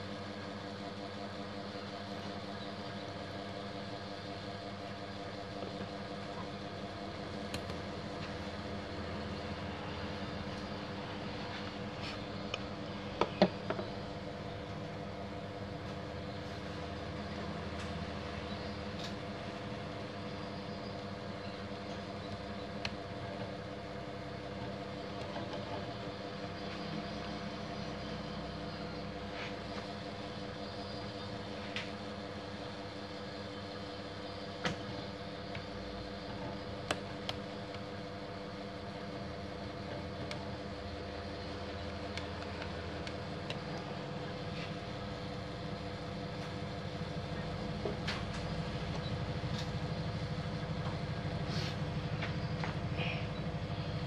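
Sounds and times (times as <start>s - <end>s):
machine hum: 0.0s - 54.0s.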